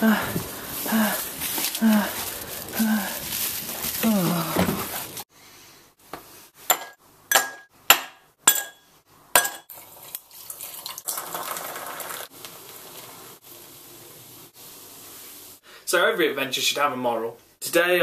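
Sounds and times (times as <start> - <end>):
liquid pouring: 9.7 - 13.2.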